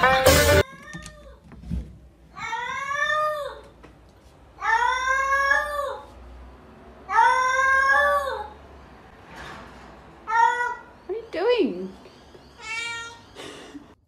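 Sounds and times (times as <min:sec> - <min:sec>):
cat meowing: 0:00.6 - 0:01.4.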